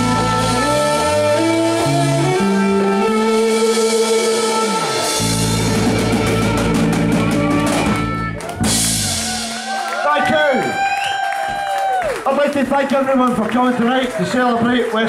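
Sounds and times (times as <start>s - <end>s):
rock band playing live: 0.0s - 10.9s
quick drum run: 5.3s - 14.3s.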